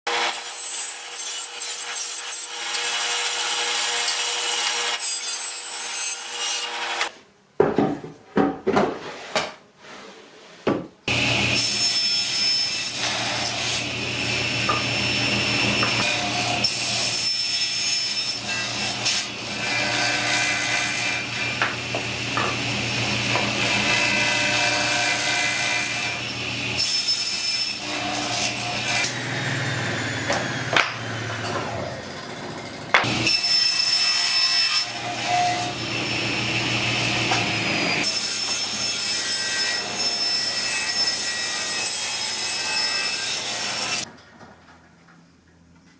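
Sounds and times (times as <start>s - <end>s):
table saw cutting wood: 0.1s - 7.1s, 11.1s - 44.1s
knocks of wood being handled: 7.6s - 9.6s, 30.3s - 31.7s.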